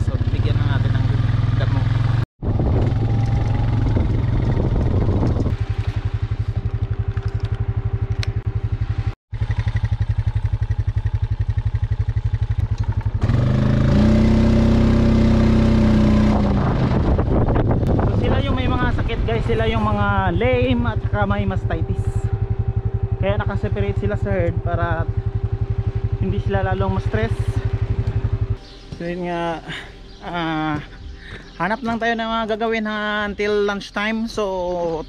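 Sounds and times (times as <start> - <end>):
small engine running: 0.1 - 17.7, 18.5 - 28.8.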